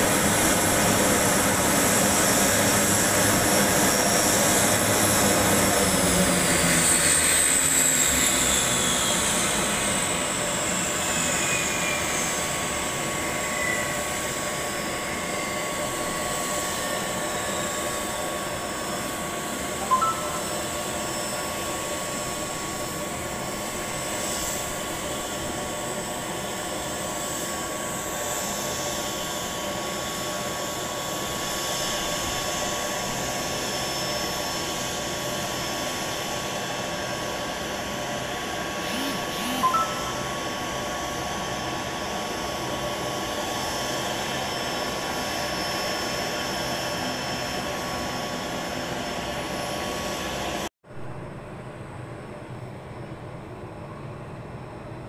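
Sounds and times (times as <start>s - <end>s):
turboprop engines running: 0.0s - 33.6s
brief sharp sound: 38.8s - 40.5s.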